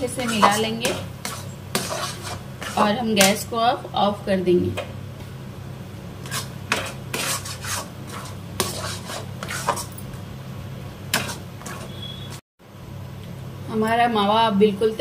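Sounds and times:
metal spatula scraping pan: 0.0s - 3.5s, 6.2s - 10.0s, 11.2s - 12.4s
steady low hum: 0.0s - 12.0s.

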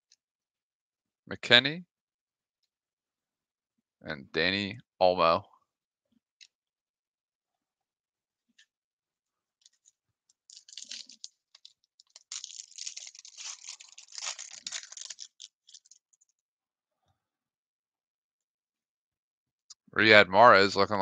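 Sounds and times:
foil wrapper tearing and crinkling: 10.5s - 16.1s.

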